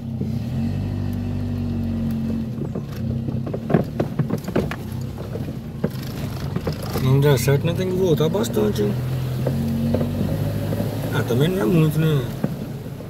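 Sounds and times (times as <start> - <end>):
car engine humming: 0.0 - 13.0
knocks and clatters: 1.5 - 7.5, 9.3 - 11.1, 12.3 - 13.0.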